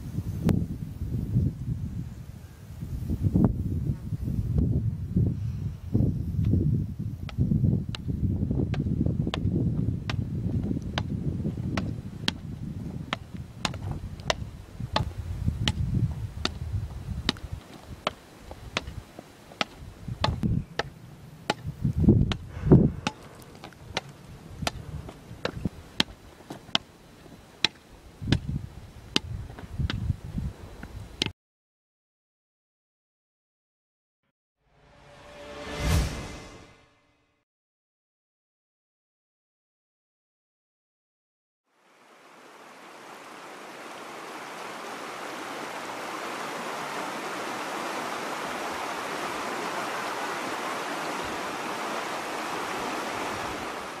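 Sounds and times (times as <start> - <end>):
river rushing over stones: 41.8 - 54.0.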